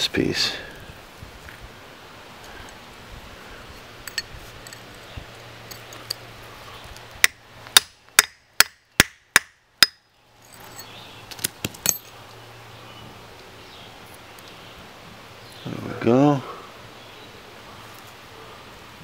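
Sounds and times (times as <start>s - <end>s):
hammer striking chisel on rock: 7.2s - 10.0s.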